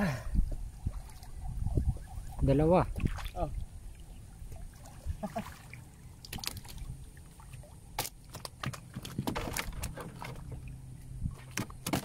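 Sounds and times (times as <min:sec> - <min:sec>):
water splashing against boat: 0:00.5 - 0:12.0
short sharp splashes and knocks: 0:02.9 - 0:12.0.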